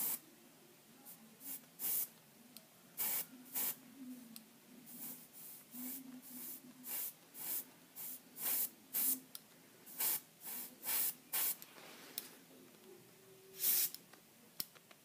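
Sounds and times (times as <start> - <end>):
airbrush spraying hisses: 3.0 - 3.8, 4.9 - 9.2, 9.9 - 11.6, 13.6 - 14.0.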